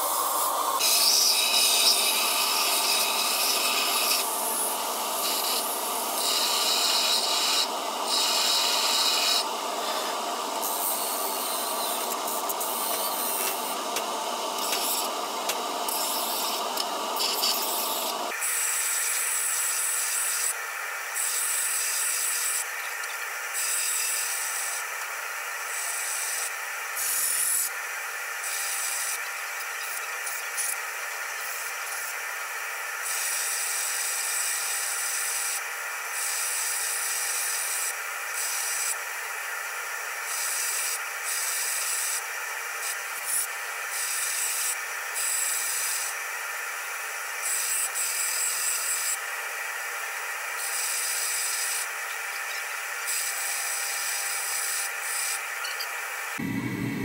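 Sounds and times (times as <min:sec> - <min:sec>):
metal grinding hiss: 0:00.0 - 0:20.5
sander motor whine: 0:56.4 - 0:57.0.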